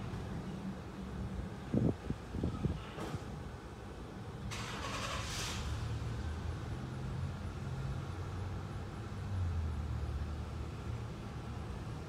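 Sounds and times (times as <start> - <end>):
vehicle engine rumble: 0.0 - 12.0
brief hiss: 4.5 - 5.9.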